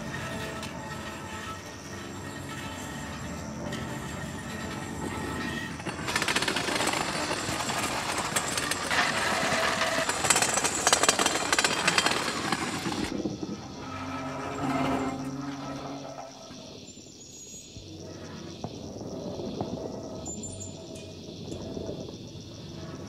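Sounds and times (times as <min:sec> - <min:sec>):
metal chairs scraping on concrete: 0:00.0 - 0:17.0.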